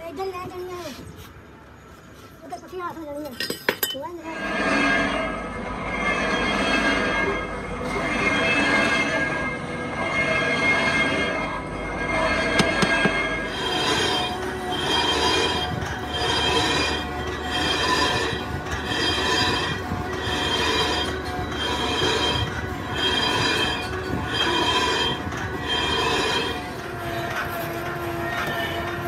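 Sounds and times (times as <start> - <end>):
shrill metal-on-metal squeal: 4.1 - 29.0.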